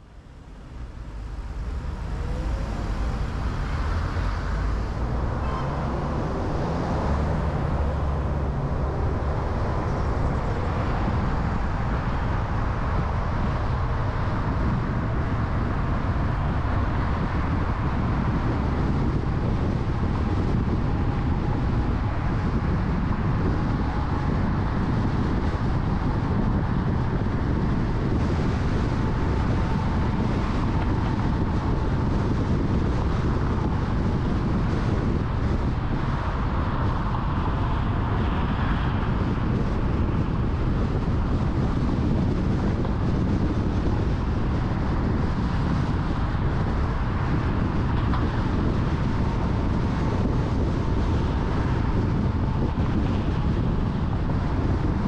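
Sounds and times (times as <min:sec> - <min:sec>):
traffic rumble: 0:00.0 - 0:55.0.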